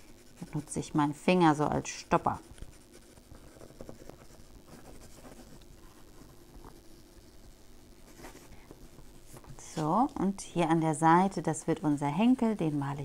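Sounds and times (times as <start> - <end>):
pencil scratching on paper: 0.0 - 7.5, 11.4 - 13.0.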